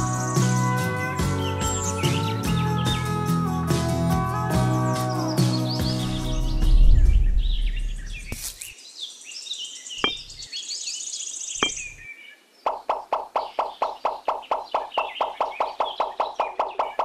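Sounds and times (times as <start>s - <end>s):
birds chirping: 0.0s - 3.5s, 4.3s - 17.0s
loud low rumble: 6.2s - 8.3s.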